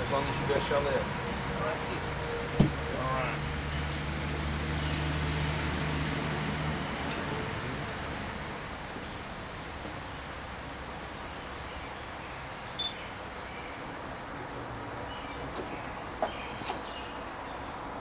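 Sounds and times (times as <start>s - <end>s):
low engine-like hum: 0.0s - 18.0s.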